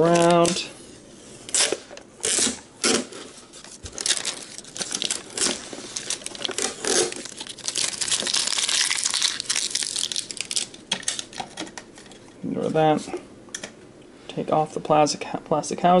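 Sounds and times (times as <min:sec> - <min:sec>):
plastic wrap crinkling and tearing: 0:00.0 - 0:00.7, 0:01.5 - 0:11.6.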